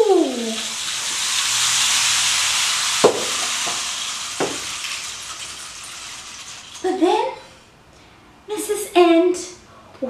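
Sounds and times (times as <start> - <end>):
rain stick hissing: 0.4 - 6.9.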